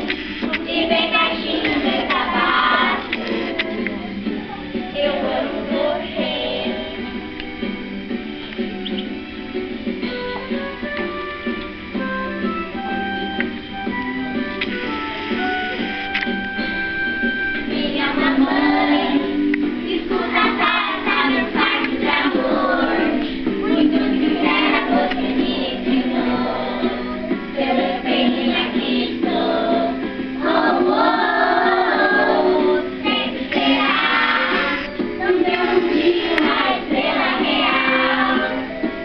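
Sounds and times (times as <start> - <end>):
children singing: 0.0 - 7.1, 17.6 - 39.0
backing music: 0.0 - 39.0.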